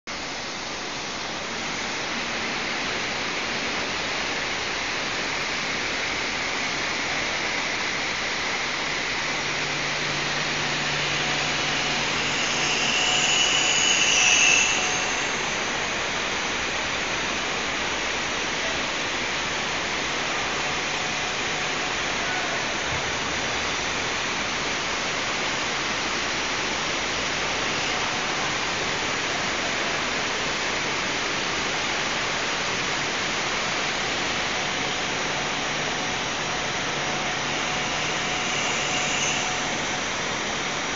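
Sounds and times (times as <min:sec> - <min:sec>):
lathe cutting steel: 0:06.7 - 0:18.6, 0:23.4 - 0:40.9.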